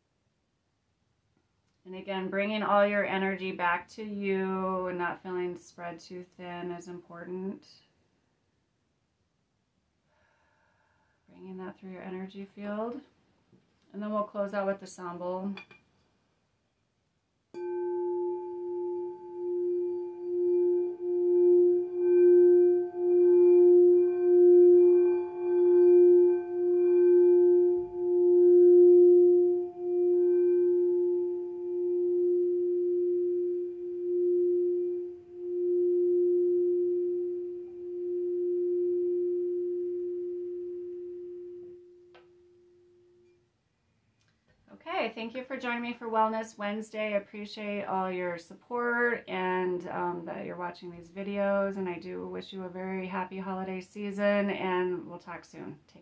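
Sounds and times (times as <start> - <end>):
singing bowl ringing: 17.6 - 43.4.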